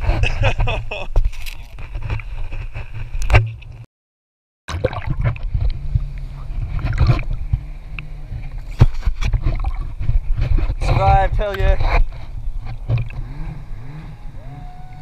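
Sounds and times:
water splashing against camera: 0:04.7 - 0:13.2.

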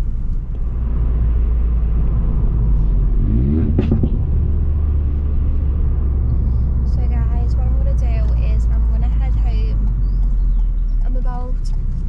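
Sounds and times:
car engine droning: 0:00.0 - 0:12.0
sharp exhaust pop: 0:03.6 - 0:04.5.

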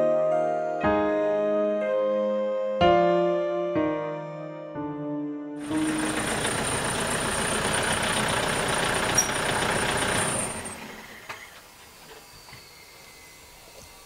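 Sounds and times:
truck engine idling: 0:05.6 - 0:11.8
thin high whine: 0:10.4 - 0:14.0.

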